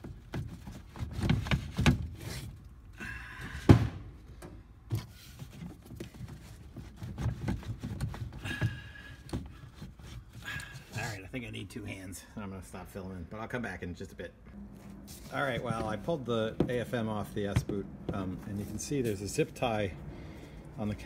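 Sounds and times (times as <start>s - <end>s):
rubber boot knocks and rubbing: 15.5s - 18.6s.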